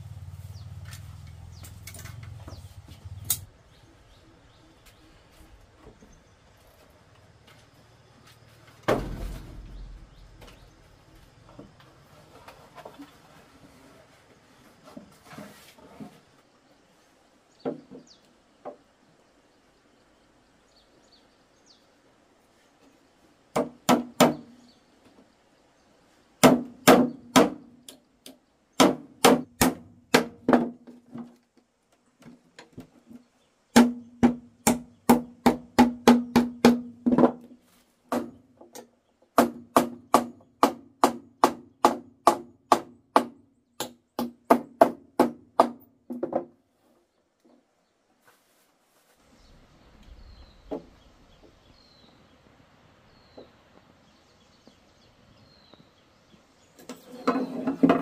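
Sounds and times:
hammer striking wood: 23.5 - 24.5, 26.4 - 27.7, 28.8 - 30.9, 33.8 - 37.4, 38.1 - 38.4, 39.4 - 46.5.

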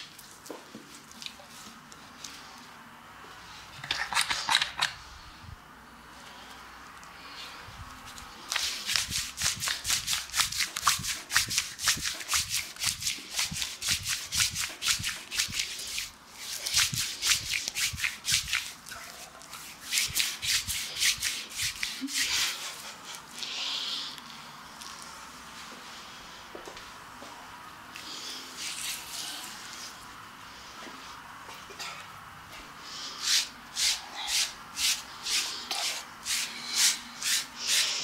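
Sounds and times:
hands rubbing lathered skin: 8.0 - 23.4, 28.6 - 30.0, 33.2 - 38.0.

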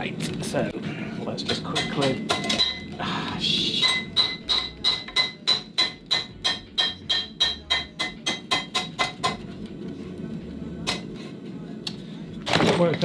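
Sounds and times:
hammer striking steel on anvil: 1.5 - 3.0, 3.8 - 9.4.

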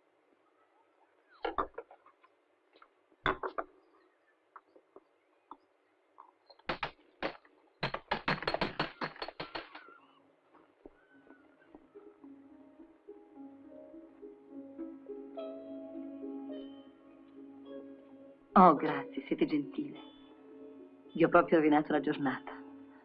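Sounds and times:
ice knocking and clinking: 6.7 - 10.0.

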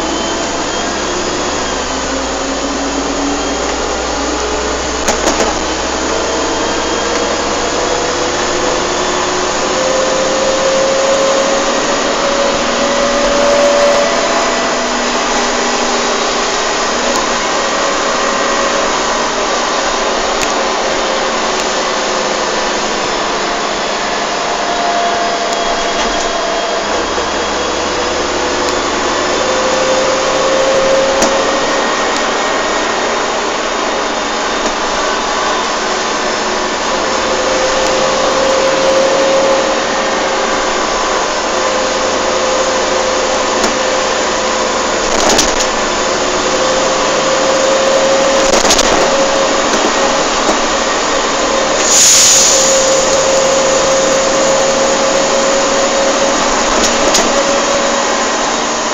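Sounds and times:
bus engine and road noise: 0.0 - 58.9
whine rising in pitch: 0.0 - 58.9
knocks and rattles: 5.0 - 5.8, 45.0 - 45.9
short burst of hiss: 51.8 - 53.8.

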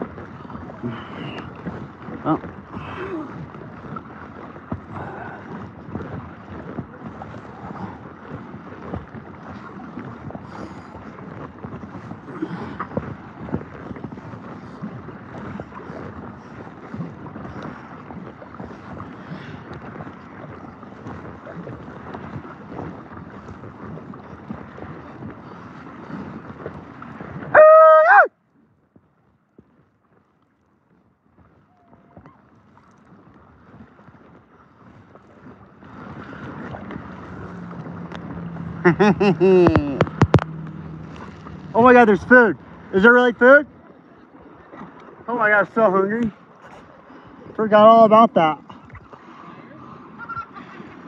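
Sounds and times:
wind on microphone: 0.0 - 28.3, 28.9 - 51.0
paddle splashing water: 0.0 - 51.0
man yelling: 27.5 - 28.3.

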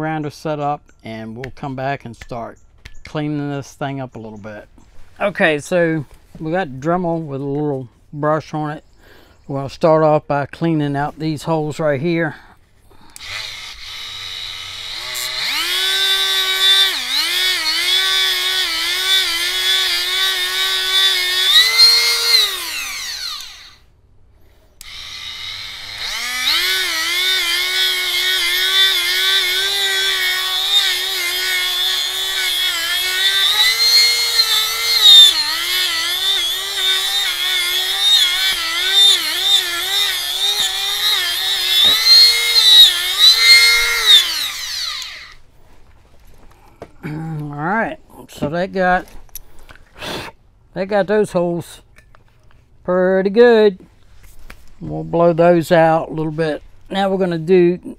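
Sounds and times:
rotary tool wire brush whining: 13.0 - 45.5.

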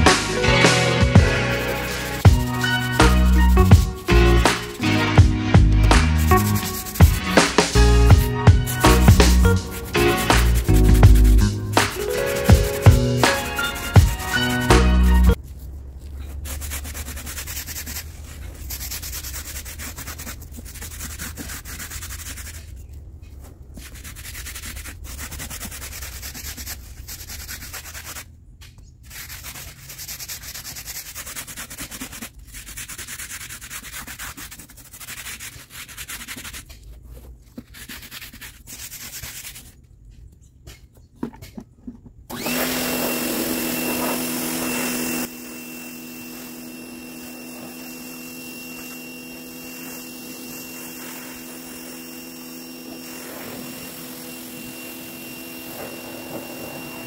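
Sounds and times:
rubbing noise: 0.0 - 28.3, 29.0 - 39.8
machine hum with high whine: 42.3 - 57.0.

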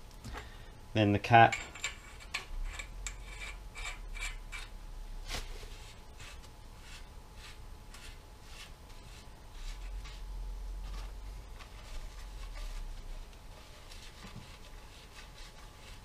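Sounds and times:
soft metal scrapes and ticks: 1.4 - 4.8.

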